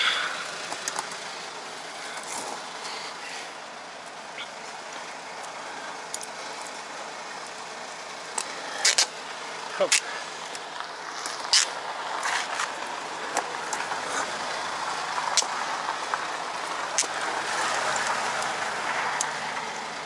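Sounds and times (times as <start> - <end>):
road traffic hiss: 0.0 - 20.0
car passing by: 13.4 - 20.0.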